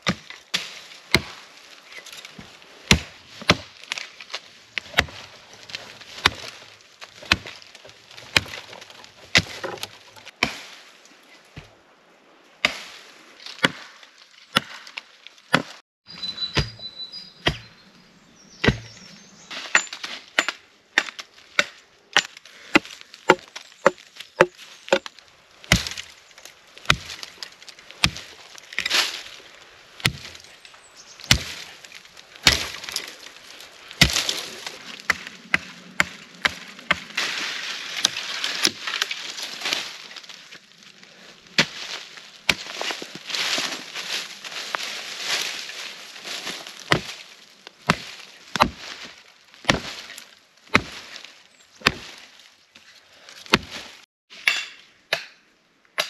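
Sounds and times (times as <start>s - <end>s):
wood being chopped: 0.0s - 1.4s, 2.3s - 10.7s, 13.5s - 15.8s, 17.4s - 17.7s, 18.6s - 19.0s, 19.6s - 26.2s, 26.8s - 29.1s, 30.0s - 30.4s, 31.3s - 31.7s, 32.4s - 33.1s, 34.0s - 37.3s, 38.0s - 39.2s, 41.6s - 43.8s, 46.7s - 47.2s, 47.8s - 51.2s, 51.8s - 52.2s, 53.5s - 55.4s.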